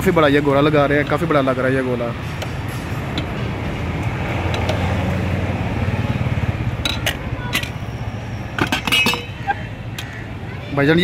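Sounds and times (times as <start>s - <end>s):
steel utensils clinking: 6.8s - 7.9s, 8.5s - 9.6s.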